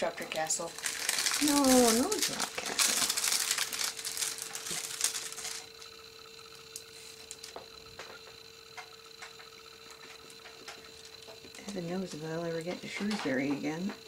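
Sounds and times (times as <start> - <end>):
plastic film crinkling: 0.4 - 5.9.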